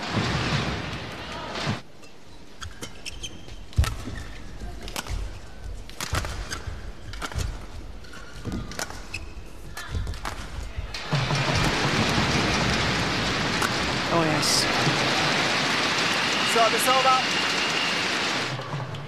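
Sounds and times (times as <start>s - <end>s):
shoes squeaking on court: 2.0s - 11.8s
low crowd hum: 4.2s - 19.0s.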